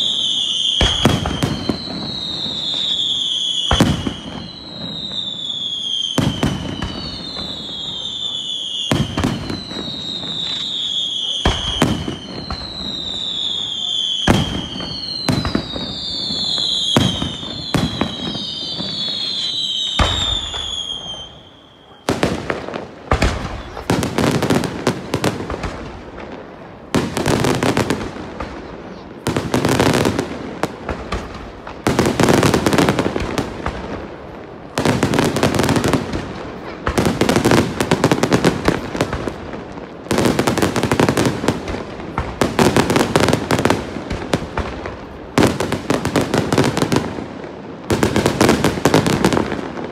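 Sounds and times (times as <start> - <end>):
firework whistles falling: 0.0 - 25.9
firework bangs: 0.0 - 49.9
firework crackling reports: 0.0 - 49.9.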